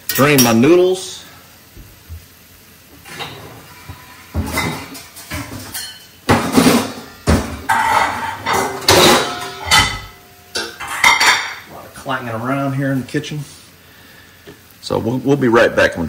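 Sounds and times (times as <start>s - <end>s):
metal pots clanging: 4.3s - 11.7s.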